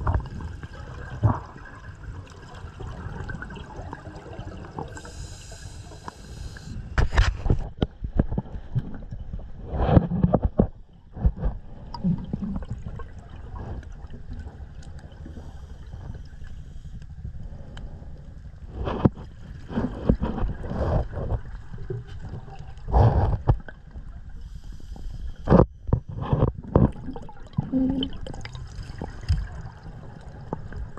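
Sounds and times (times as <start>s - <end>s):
exhaled bubbles gurgling: 0.0s - 9.8s, 11.1s - 16.6s, 18.6s - 30.9s
regulator inhale hiss: 5.0s - 7.0s, 15.3s - 18.0s, 24.4s - 25.5s.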